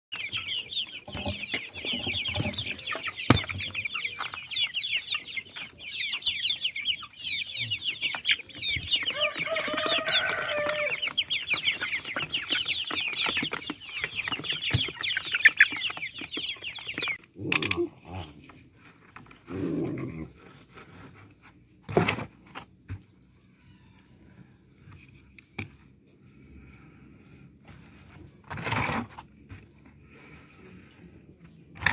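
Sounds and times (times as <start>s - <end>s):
hens clucking: 0.1s - 31.9s
knife scraping plastic bucket: 27.7s - 29.9s.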